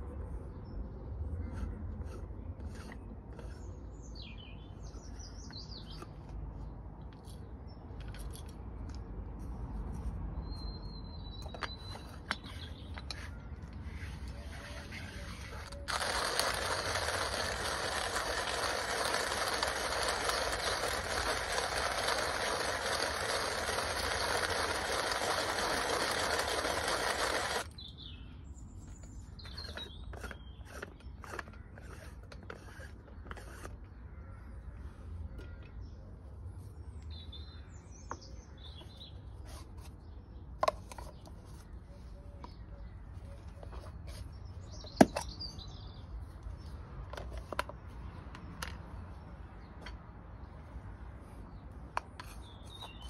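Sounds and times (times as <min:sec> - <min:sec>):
small birds chirping: 0:00.3 - 0:08.0, 0:09.4 - 0:46.8, 0:47.4 - 0:53.0
hand coffee grinder grinding: 0:14.0 - 0:27.7, 0:29.5 - 0:33.8.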